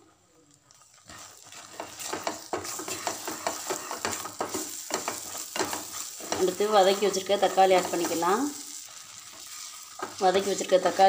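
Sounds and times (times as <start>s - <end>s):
light sizzle: 0.0s - 11.0s
spatula scraping a pan: 0.8s - 11.0s.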